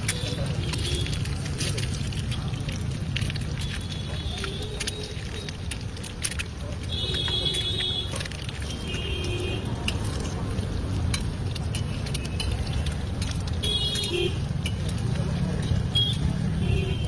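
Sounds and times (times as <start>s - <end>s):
traffic rumble: 0.0s - 17.0s
metal spatula clicking on griddle: 11.0s - 13.5s.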